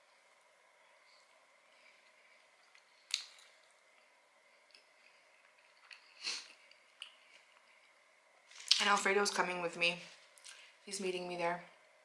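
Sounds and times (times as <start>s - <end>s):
person chewing: 2.0s - 8.8s.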